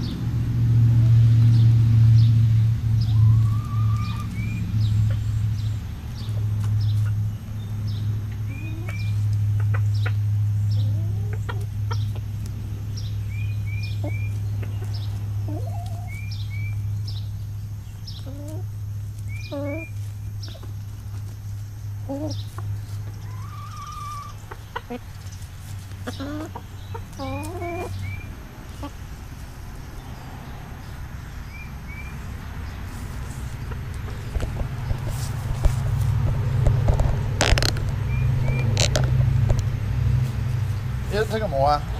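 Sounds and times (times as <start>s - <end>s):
steady low hum: 0.0s - 41.9s
high bird chirps: 3.0s - 12.2s, 12.9s - 20.8s, 22.0s - 34.2s, 38.0s - 38.8s
chickens clucking: 3.0s - 41.9s.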